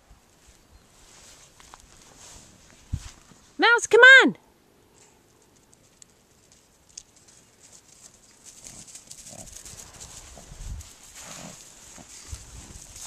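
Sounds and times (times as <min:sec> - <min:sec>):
footsteps through tall grass: 0:00.0 - 0:03.6, 0:07.3 - 0:13.0
stems crackling: 0:05.0 - 0:13.0
dog snuffling: 0:07.3 - 0:13.0.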